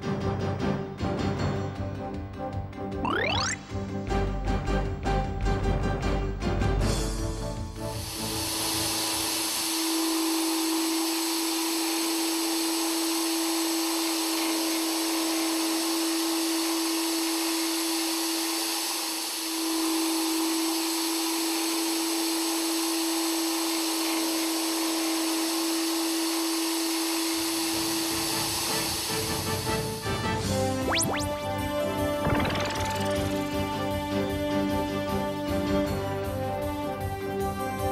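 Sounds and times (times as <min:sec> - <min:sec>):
end mill cutting steel hiss: 0:07.8 - 0:30.1.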